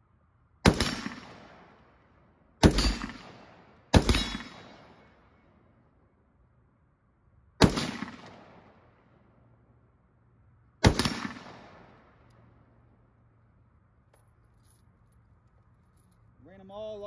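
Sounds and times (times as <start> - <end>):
rifle shots with rolling echo: 0.6 - 5.8, 7.5 - 9.7, 10.8 - 13.0.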